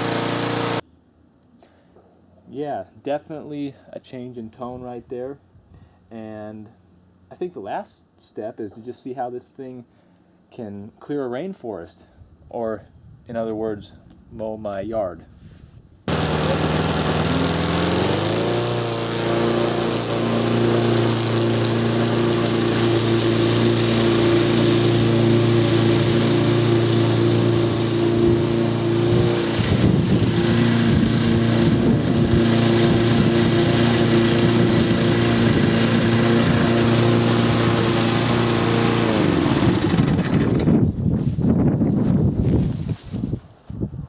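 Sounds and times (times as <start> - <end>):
lawn mower engine running: 0.0 - 0.8, 16.1 - 40.9.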